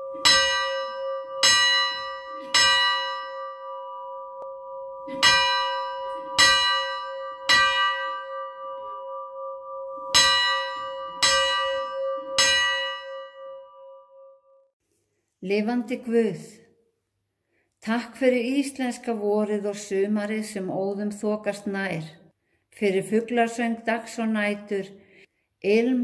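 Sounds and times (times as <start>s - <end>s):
church bell striking: 0.0s - 14.4s.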